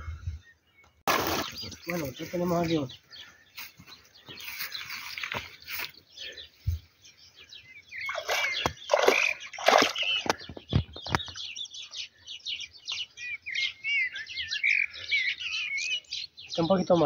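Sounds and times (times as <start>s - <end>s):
small birds chirping: 0.0s - 17.0s
fish splashing in water: 1.1s - 2.0s, 8.1s - 10.4s.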